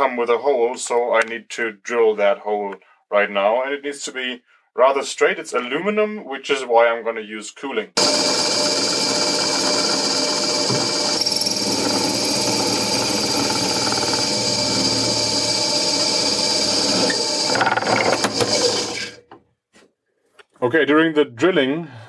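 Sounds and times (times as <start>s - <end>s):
drill press cutting metal: 8.0s - 19.2s.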